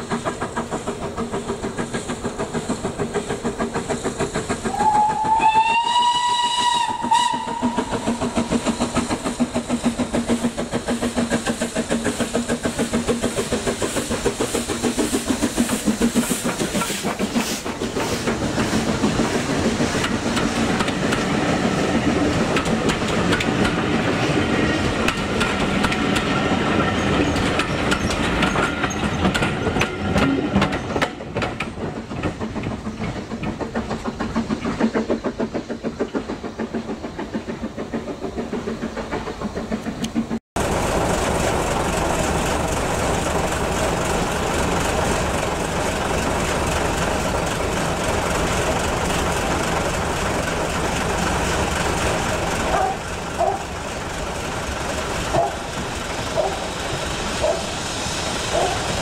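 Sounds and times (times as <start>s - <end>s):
steam locomotive chuffing: 0.0s - 59.0s
steam whistle: 4.7s - 8.1s.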